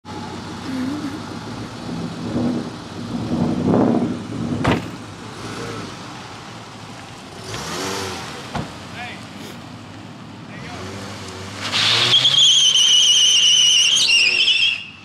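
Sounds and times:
car engine idling and revving: 0.0s - 14.0s
car door shutting: 4.6s - 5.0s, 8.5s - 8.8s.

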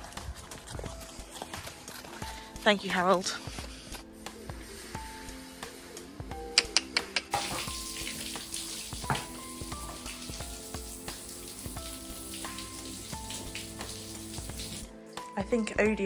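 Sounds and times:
background music: 0.0s - 16.0s
hose water spraying: 7.3s - 14.9s.

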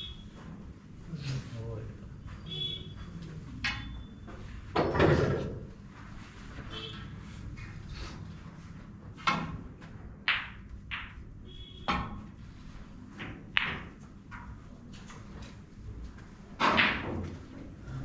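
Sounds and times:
snooker balls clicking: 9.2s - 12.3s, 13.1s - 17.6s.

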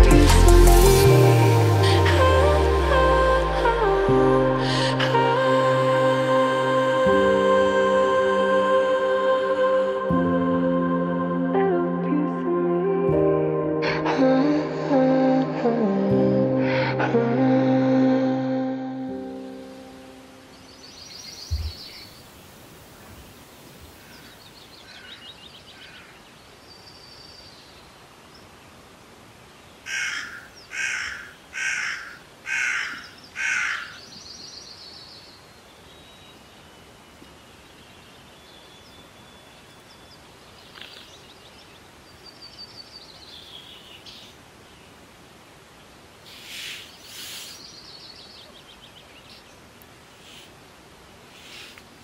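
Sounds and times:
songbirds trilling faintly: 20.3s - 52.0s
crow cawing: 24.0s - 26.2s, 29.9s - 34.0s.

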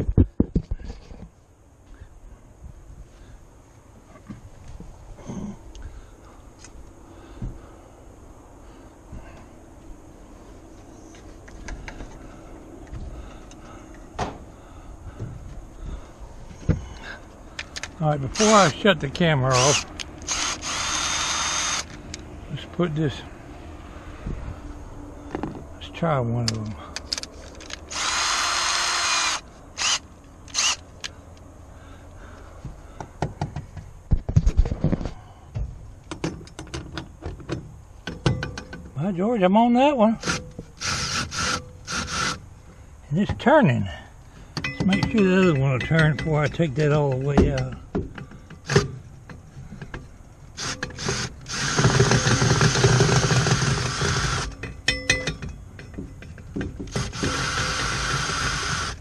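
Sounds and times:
cordless drill whirring: 19.5s - 21.9s, 27.9s - 30.8s, 40.2s - 42.4s, 50.6s - 54.5s, 56.9s - 59.0s
metal knocks clicks and scrapes: 33.0s - 39.0s, 44.5s - 57.8s.

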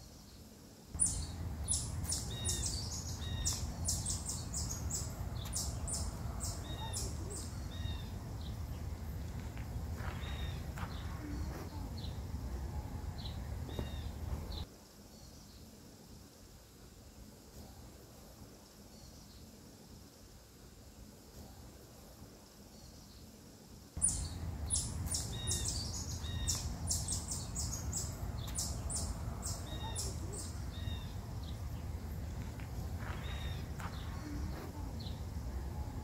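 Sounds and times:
small birds chirping: 0.0s - 15.7s, 24.0s - 36.0s.

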